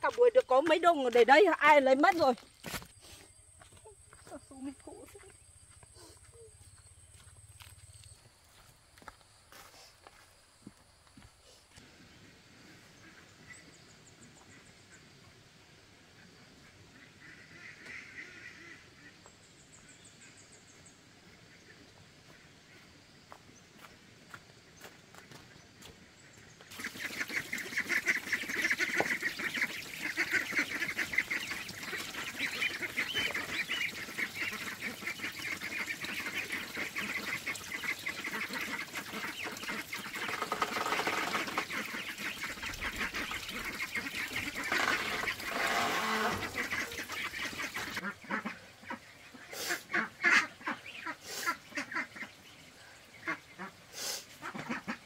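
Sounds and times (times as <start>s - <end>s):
waterfowl quacking and honking: 16.7s - 19.2s, 26.7s - 55.0s.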